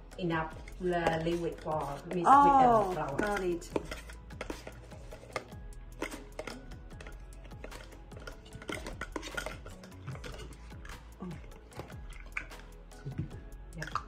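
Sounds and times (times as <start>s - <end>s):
spoon scraping plastic tub: 0.6s - 13.2s
spoon tapping plastic cup: 2.9s - 10.4s.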